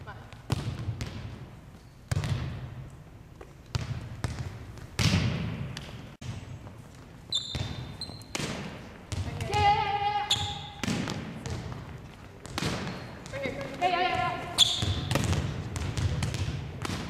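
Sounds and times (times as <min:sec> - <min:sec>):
volleyball smacks on gym floor: 0:03.7 - 0:06.0, 0:07.6 - 0:09.6, 0:10.4 - 0:13.8, 0:14.6 - 0:17.0.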